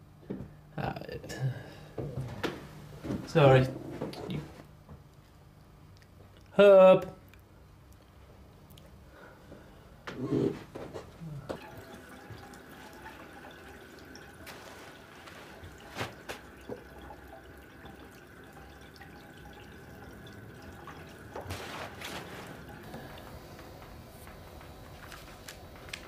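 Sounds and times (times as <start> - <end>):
water dripping: 11.5 - 23.9
wet clothes being handled: 11.6 - 17.1, 20.9 - 23.3.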